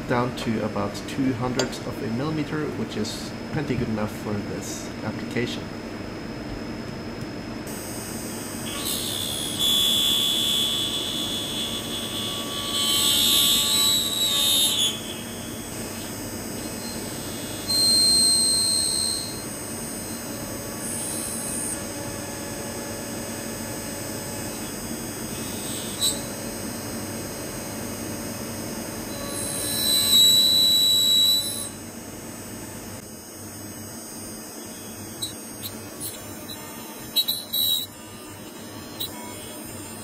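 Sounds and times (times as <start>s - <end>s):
high-pitched cutting squeals: 8.7s - 21.8s, 24.3s - 26.8s, 29.1s - 31.8s, 34.0s - 40.0s
milling machine spindle running: 33.5s - 40.0s.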